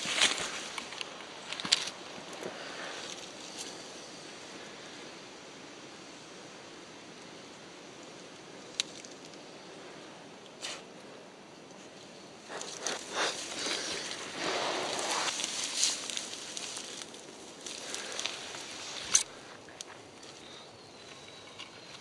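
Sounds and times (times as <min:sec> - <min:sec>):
undergrowth rustling and crunching: 0:00.0 - 0:03.8, 0:12.4 - 0:21.2.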